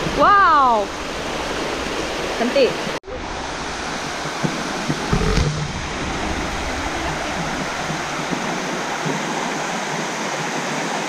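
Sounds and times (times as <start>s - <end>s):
waterfall rushing over rock: 0.0s - 11.0s
low bumps: 3.7s - 9.7s.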